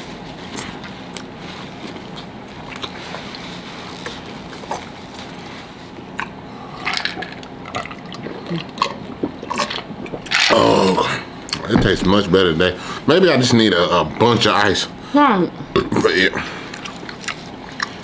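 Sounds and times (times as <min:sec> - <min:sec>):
wet chewing and lip smacks: 0:00.5 - 0:03.4, 0:06.1 - 0:06.4, 0:16.7 - 0:18.0
swallowing drink: 0:06.2 - 0:11.4.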